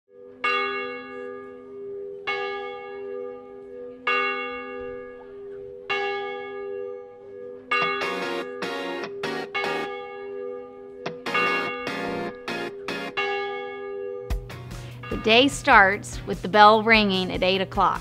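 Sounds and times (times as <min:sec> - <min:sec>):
large bell tolling: 0:00.1 - 0:16.3
music with strummed hits: 0:07.8 - 0:09.9, 0:11.0 - 0:13.2.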